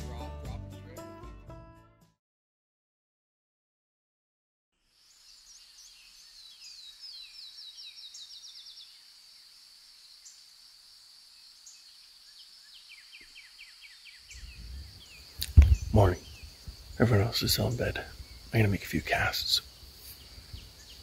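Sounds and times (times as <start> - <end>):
high insect drone: 4.8 - 21.0
songbirds calling: 5.0 - 10.6, 11.3 - 21.0.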